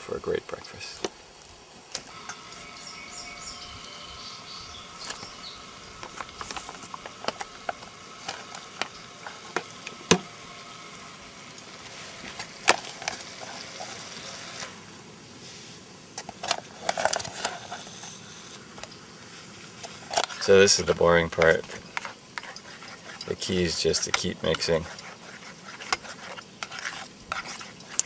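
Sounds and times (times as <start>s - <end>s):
spoon scraping metal pan: 21.3s - 28.0s.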